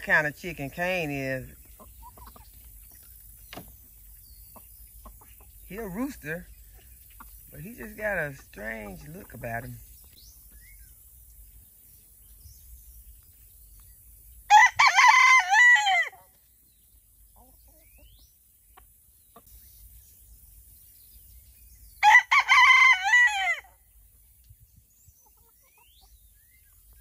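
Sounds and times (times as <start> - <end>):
rooster crowing: 14.5 - 16.2, 22.0 - 23.7.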